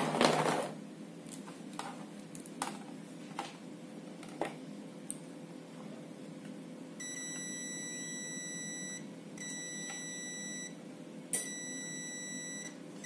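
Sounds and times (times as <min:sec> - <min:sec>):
multimeter continuity beep: 0:07.0 - 0:10.8, 0:11.4 - 0:13.0.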